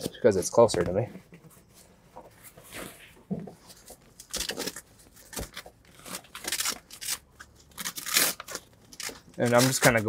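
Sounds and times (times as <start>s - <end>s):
fabric rustling and scraping: 0.0s - 6.3s.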